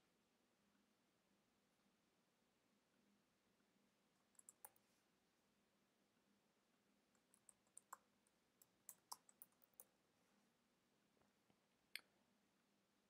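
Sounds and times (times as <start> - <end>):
computer keyboard keystrokes: 4.4 - 4.8, 7.2 - 8.0, 8.6 - 9.9.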